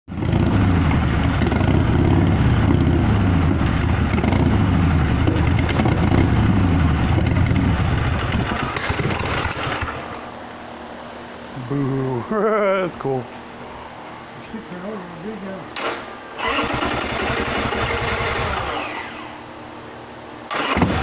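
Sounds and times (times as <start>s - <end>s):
motorcycle engine idling: 0.1s - 10.0s.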